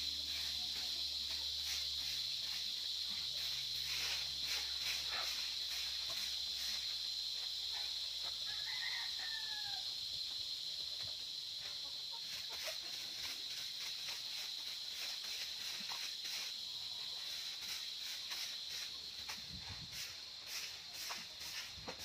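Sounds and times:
broom sweeping dry dirt: 0.0 - 22.0
high insect drone: 0.0 - 22.0
rooster crowing: 8.4 - 10.1.

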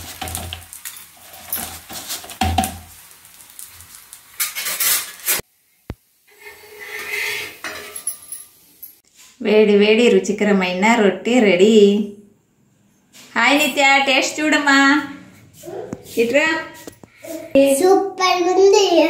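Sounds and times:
metal utensils scraping a griddle: 4.3 - 5.4, 6.3 - 8.3.

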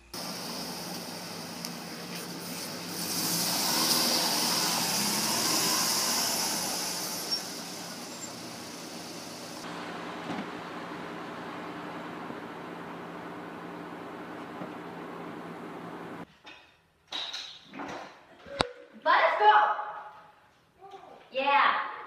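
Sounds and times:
car driving past slowly: 0.2 - 16.2.

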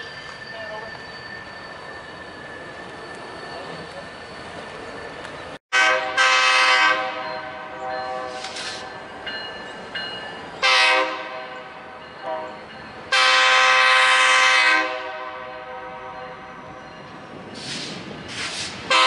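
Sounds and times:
locomotive air horn blasts: 5.7 - 8.6, 10.6 - 11.6, 12.2 - 12.5, 13.1 - 16.4.

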